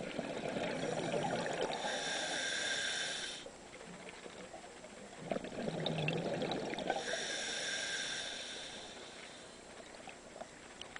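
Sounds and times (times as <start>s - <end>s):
exhaled bubbles gurgling underwater: 0.0s - 10.6s
regulator inhalation hiss: 1.7s - 3.5s, 6.9s - 9.5s.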